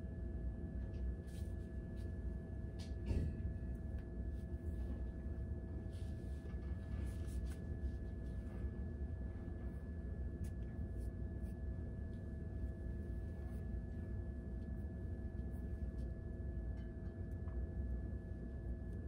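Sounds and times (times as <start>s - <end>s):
low room hum: 0.0s - 19.0s
hair being handled: 5.9s - 8.5s.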